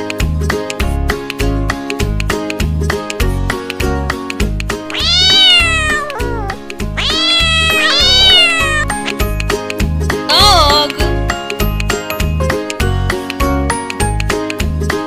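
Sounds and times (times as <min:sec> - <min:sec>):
cat meowing: 0:04.8 - 0:09.2.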